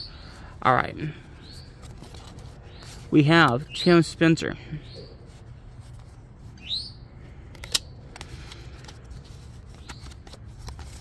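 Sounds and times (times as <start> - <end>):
cardboard cards flipped by hand: 1.7 - 3.6, 7.4 - 11.0
small bird chirping: 6.6 - 7.0.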